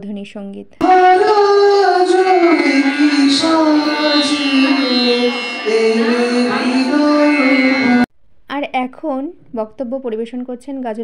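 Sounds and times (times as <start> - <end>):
person singing long notes: 0.8 - 8.1.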